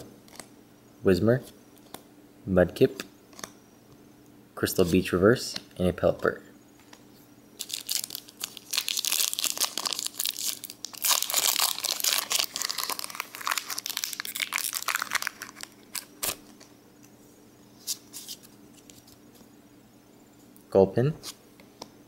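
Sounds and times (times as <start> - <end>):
foil wrapper crinkling: 7.6 - 16.7.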